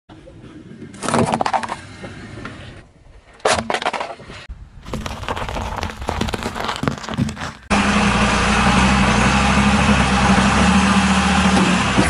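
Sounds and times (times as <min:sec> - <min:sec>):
car tyre crushing plastic toys: 0:04.8 - 0:07.7.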